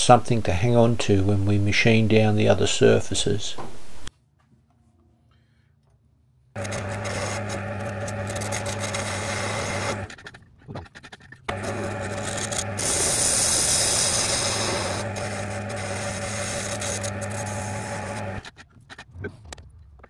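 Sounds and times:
lathe spindle hum: 6.6s - 10.1s, 11.5s - 18.4s
tool scraping metal: 6.6s - 18.7s.

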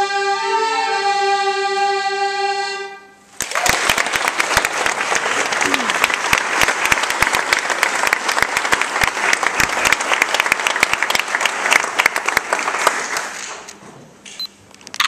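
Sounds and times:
audience applauding: 3.4s - 13.7s.

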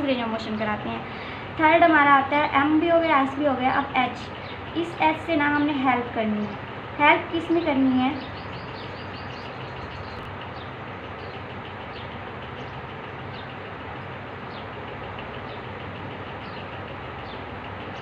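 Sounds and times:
background hum and hiss: 0.0s - 18.0s
small bird chirping: 7.5s - 18.0s.

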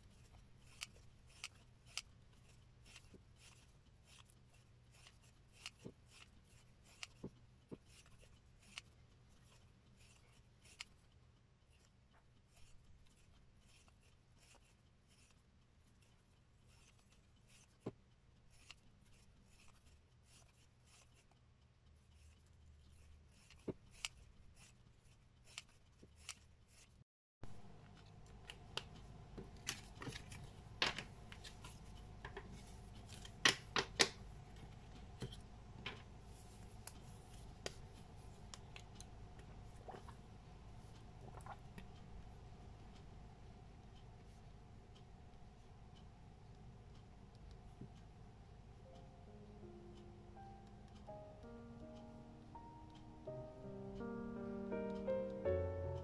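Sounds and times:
scissors snipping paper: 0.0s - 11.0s, 11.7s - 21.4s, 22.2s - 27.0s.

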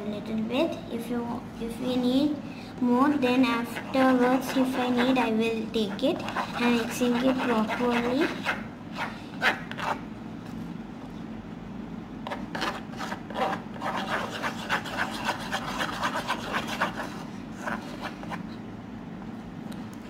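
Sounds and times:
spoon scraping slime in plastic bowl: 3.6s - 5.2s, 5.9s - 10.0s.

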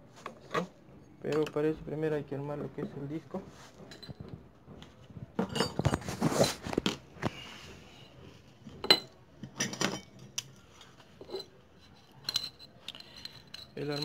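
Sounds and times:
metal parts clinking: 8.8s - 14.0s.

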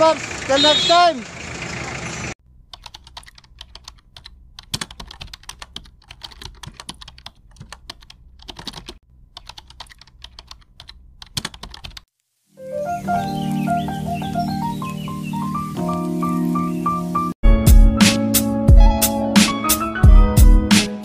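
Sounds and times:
keyboard typing clicks: 2.7s - 12.0s
music: 12.6s - 21.0s.

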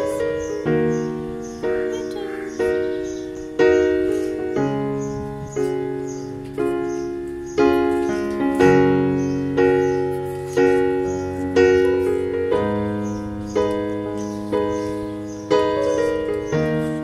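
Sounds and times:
piano chords: 0.0s - 17.0s.

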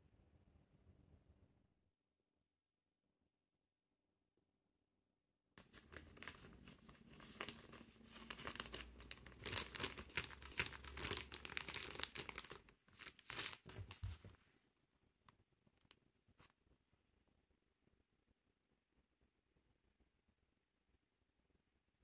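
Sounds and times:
plastic bag crinkling: 5.6s - 14.3s.

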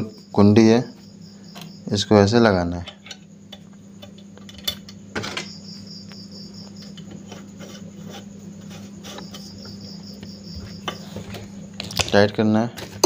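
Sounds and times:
light metal scraping: 6.8s - 9.9s.

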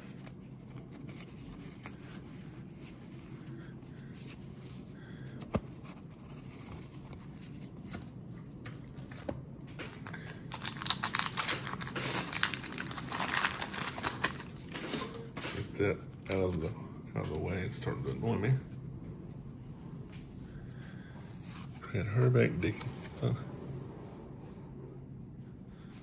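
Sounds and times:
paper wrapper crinkling and tearing: 8.9s - 15.2s.

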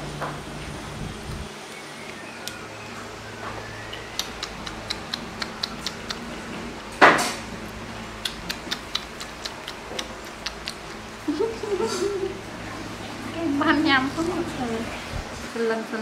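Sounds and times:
monkey chewing wet mouth clicks: 4.1s - 6.4s, 8.2s - 11.0s.

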